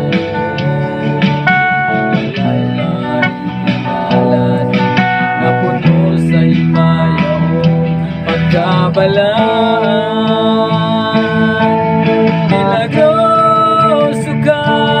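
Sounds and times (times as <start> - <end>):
man singing: 0.0 - 15.0
strummed guitar: 0.0 - 15.0.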